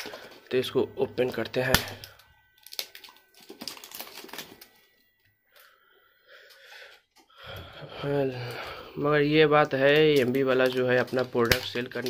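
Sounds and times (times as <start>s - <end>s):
plastic crackling and clicking: 1.2s - 5.7s, 9.5s - 12.0s.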